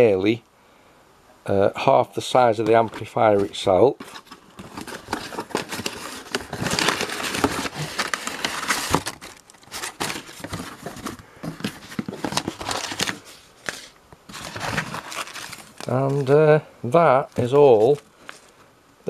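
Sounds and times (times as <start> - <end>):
packing paper crumpling and rustling: 2.5 - 18.6
cardboard box being opened: 2.8 - 16.4.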